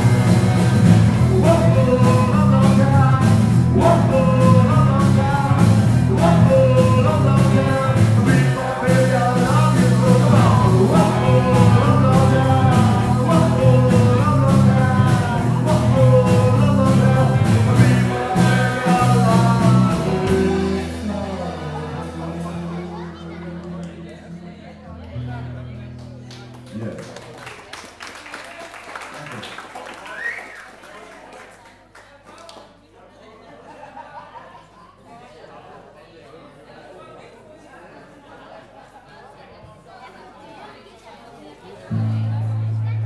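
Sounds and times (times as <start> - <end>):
live rock band playing: 0.0 - 24.4, 41.9 - 43.0.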